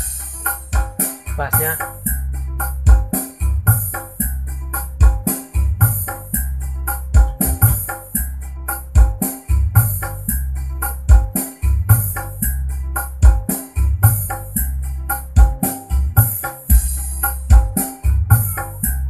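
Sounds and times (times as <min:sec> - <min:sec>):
music with drum beat and heavy bass: 0:00.0 - 0:19.0.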